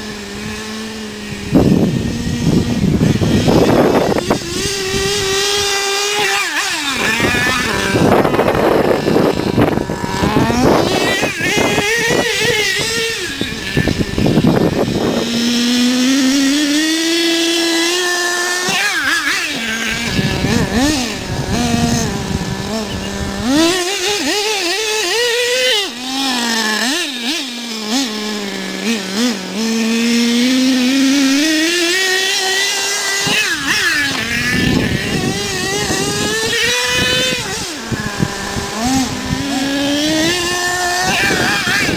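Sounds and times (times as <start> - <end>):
model truck engine revving: 0.0 - 41.9.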